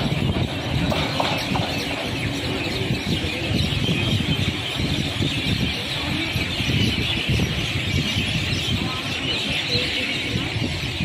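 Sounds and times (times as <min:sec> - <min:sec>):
train wheels rumbling on track: 0:00.0 - 0:11.0.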